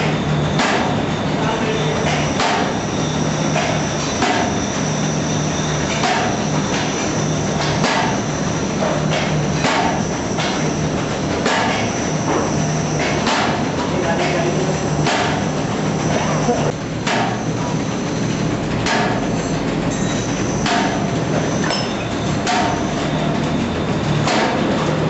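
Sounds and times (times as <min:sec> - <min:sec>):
sharp machine knocks: 0:15.0 - 0:15.4.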